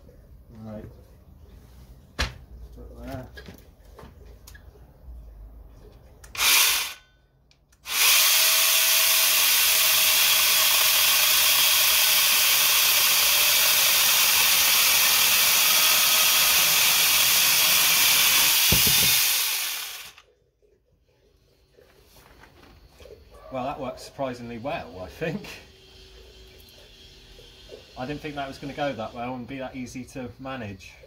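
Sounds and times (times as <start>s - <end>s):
chainsaw cutting log: 6.4s - 7.0s, 7.8s - 20.3s.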